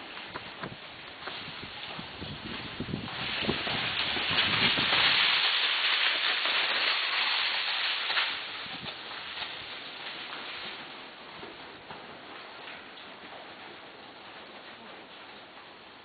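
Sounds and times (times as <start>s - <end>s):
rush of hissing noise: 0.0s - 11.3s
hooves striking loose dirt: 0.0s - 15.8s.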